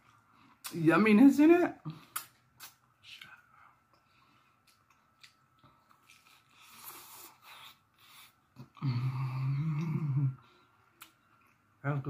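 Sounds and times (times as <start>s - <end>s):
chewing and mouth clicks: 1.9s - 8.8s, 10.8s - 11.8s.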